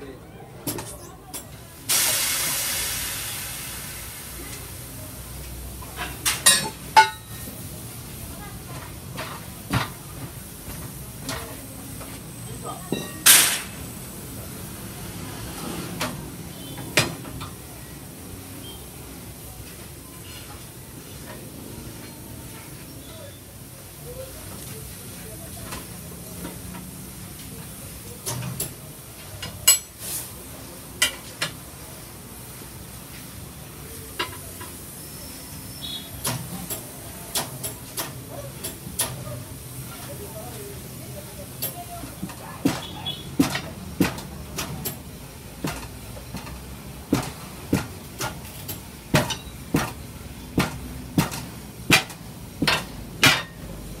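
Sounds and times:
tools knocking and clanking on metal: 0.6s - 1.5s, 6.0s - 7.5s, 12.9s - 13.8s, 41.6s - 53.7s
short air hiss: 1.9s - 4.4s
hammer striking metal: 50.6s - 53.6s.

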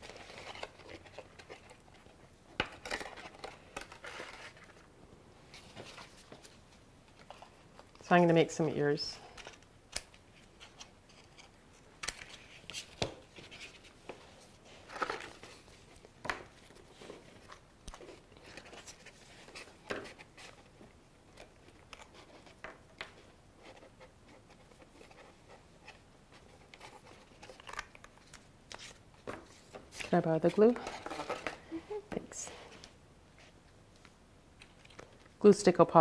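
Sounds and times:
paper rustling: 0.0s - 4.9s, 10.3s - 31.8s.

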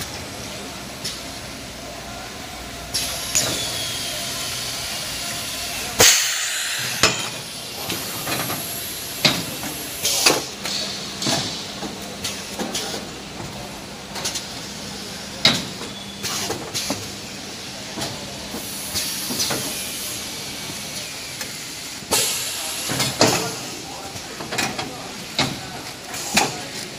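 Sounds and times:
steady hiss of air: 0.0s - 13.3s, 16.2s - 24.3s.

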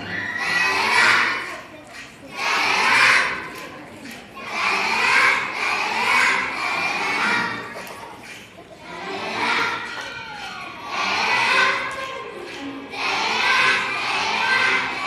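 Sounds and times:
children voicing in unison: 0.0s - 1.4s.

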